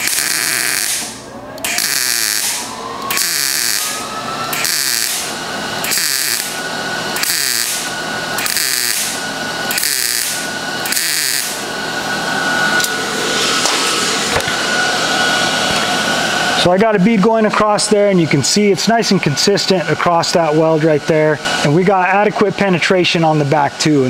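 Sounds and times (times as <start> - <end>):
welding arc crackle: 0.0 - 4.0, 4.6 - 6.6, 7.2 - 11.6.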